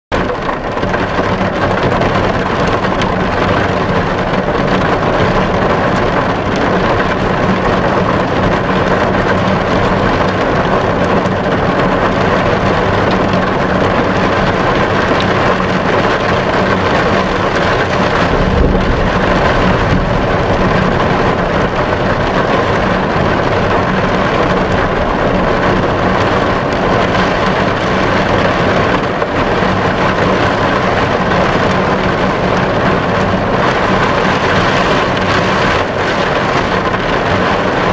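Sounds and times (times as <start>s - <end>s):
heavy rain on windscreen: 0.1s - 37.9s
low thump: 18.2s - 22.4s.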